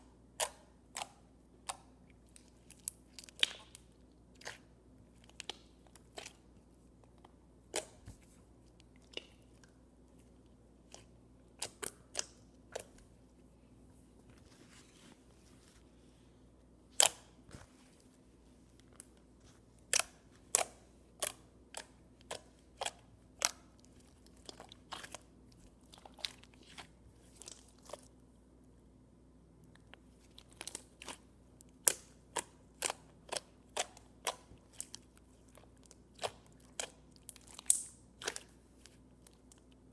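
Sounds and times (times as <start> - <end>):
slime clicking and popping: 30.5 - 35.0, 36.2 - 38.5.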